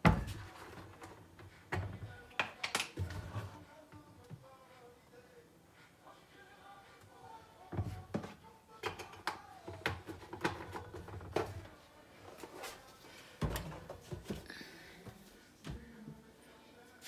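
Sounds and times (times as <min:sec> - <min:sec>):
kitchen things clicking and tapping: 0:00.0 - 0:03.4, 0:07.7 - 0:11.7.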